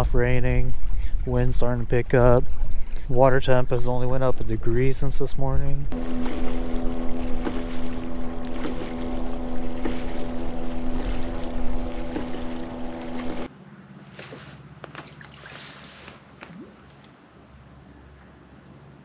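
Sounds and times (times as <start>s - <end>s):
faint water lapping: 0.0s - 18.4s
steady hum: 4.8s - 13.5s
rushing water: 5.9s - 13.5s, 14.2s - 17.1s.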